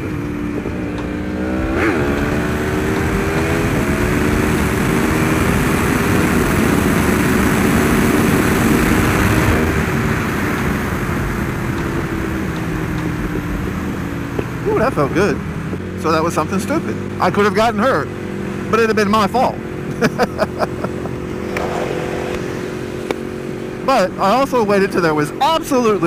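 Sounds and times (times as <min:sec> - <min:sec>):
motorcycle engine revving hard: 0:00.0 - 0:26.0
wind rush: 0:21.0 - 0:23.6.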